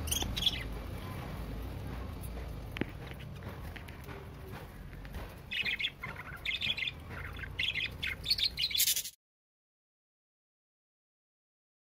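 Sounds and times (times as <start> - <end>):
budgerigars chirping and chattering: 0.0 - 0.8, 5.1 - 9.2.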